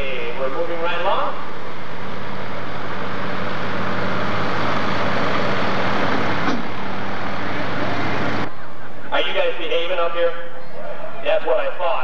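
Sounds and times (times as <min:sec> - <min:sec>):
tractor engine idling loudly: 0:00.0 - 0:08.5.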